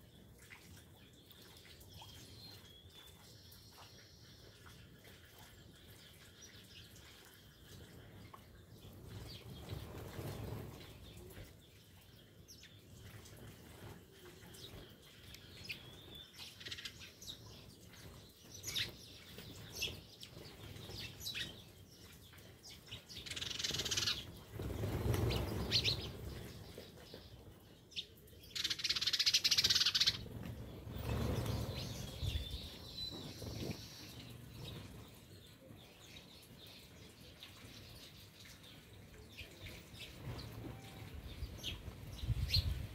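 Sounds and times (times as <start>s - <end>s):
sparrows chirping: 1.0s - 42.9s
wings flapping: 9.2s - 11.0s, 23.4s - 26.8s, 29.7s - 33.9s.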